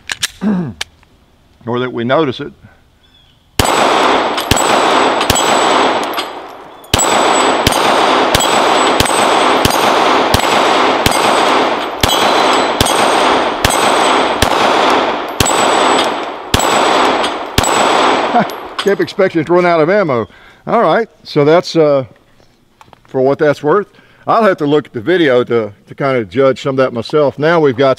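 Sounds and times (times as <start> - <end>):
pistol shots: 3.6 - 19.1
bullets clanging on steel targets: 4.3 - 19.0.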